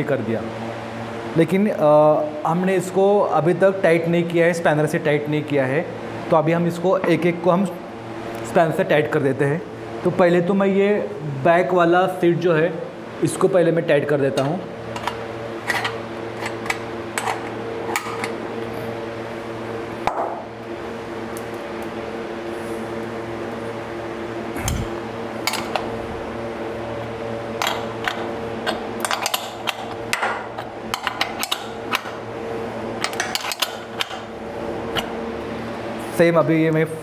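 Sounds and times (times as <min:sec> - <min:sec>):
steady hum: 0:00.0 - 0:37.0
spanner clicking on bolts: 0:27.6 - 0:32.2.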